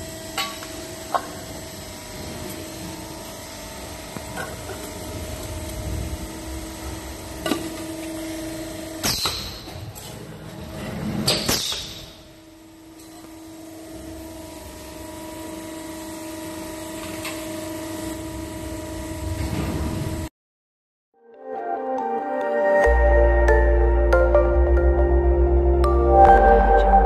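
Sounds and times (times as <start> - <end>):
machine humming: 0.0 - 9.0.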